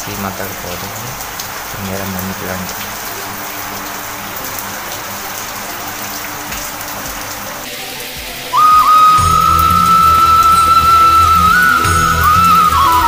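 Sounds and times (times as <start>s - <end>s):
heavy rain pattering: 0.0s - 13.0s
music with high held note: 3.0s - 13.0s.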